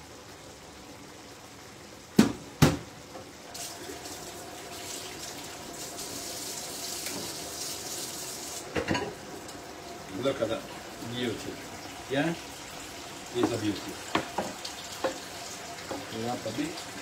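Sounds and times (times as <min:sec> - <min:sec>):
tap running water into sink: 0:03.6 - 0:09.6, 0:13.2 - 0:17.0.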